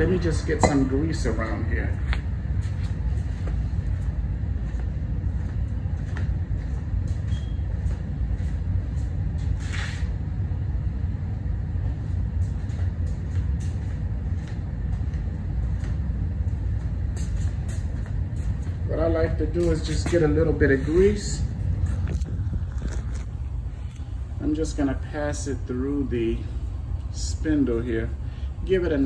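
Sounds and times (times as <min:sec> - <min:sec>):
low rumble: 0:00.0 - 0:29.0.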